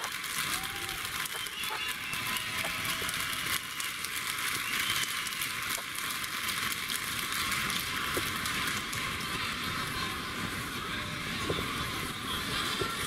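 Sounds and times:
crowd noise in a hall: 0:00.0 - 0:13.0.

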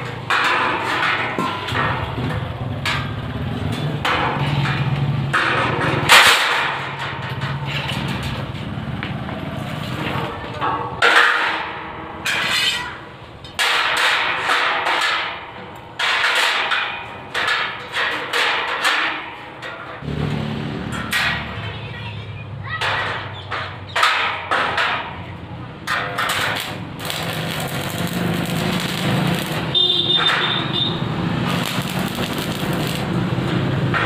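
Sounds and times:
arc welder crackling: 0:25.9 - 0:34.0.

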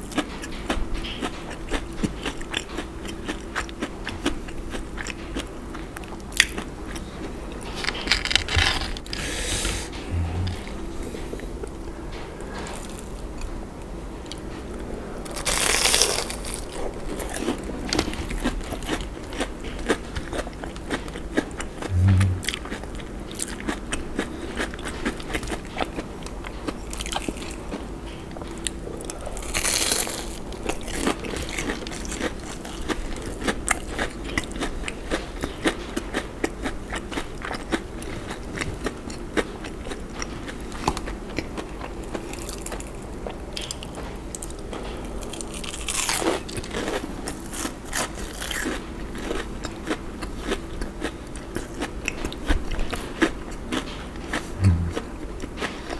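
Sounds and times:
crackly chewing: 0:00.0 - 0:55.9
low thump: 0:54.6 - 0:55.0.

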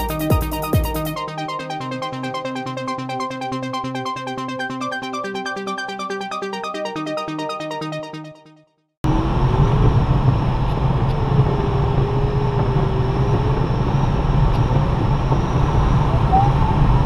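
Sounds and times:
plane engine drone: 0:09.0 - 0:17.0
thin wavering tone: 0:15.8 - 0:17.0.

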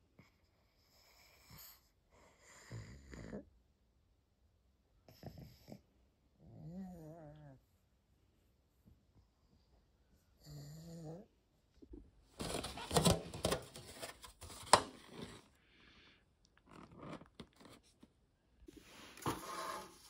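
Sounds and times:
plastic container crackling: 0:12.4 - 0:15.5.

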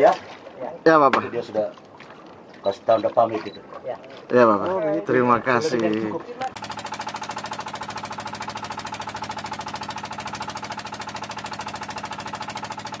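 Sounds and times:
boat engine chugging: 0:06.5 - 0:13.0.

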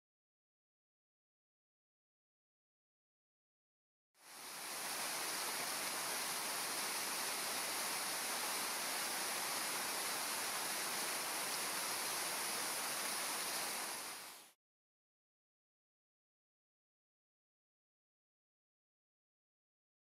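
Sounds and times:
waterfall rushing: 0:04.2 - 0:14.6.

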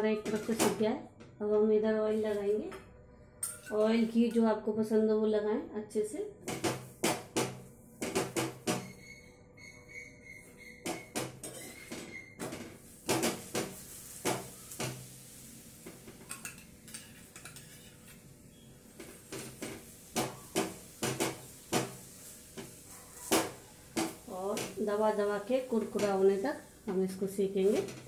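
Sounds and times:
metal spatula clinking on pan: 0:03.4 - 0:03.9, 0:16.2 - 0:18.0
oil sizzling in pan: 0:10.0 - 0:28.0.

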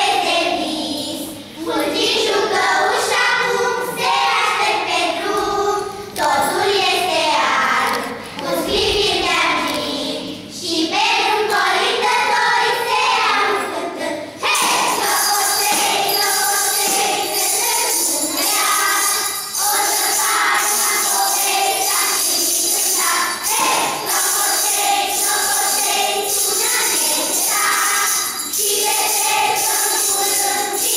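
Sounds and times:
children's choir singing: 0:00.0 - 0:30.9
jingle bells shaking: 0:14.4 - 0:30.9.

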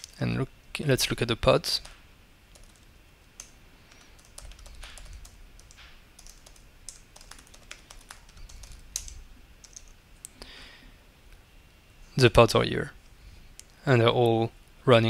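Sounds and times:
keyboard typing clicks: 0:01.8 - 0:10.0.

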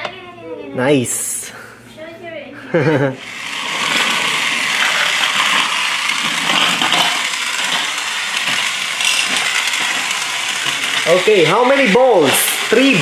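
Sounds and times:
toy train motor whir: 0:03.0 - 0:13.0
plastic rattling: 0:03.7 - 0:13.0.

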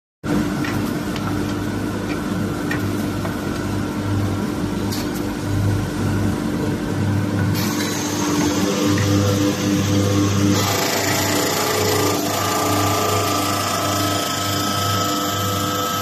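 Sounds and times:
wood lathe motor hum: 0:07.7 - 0:16.0.

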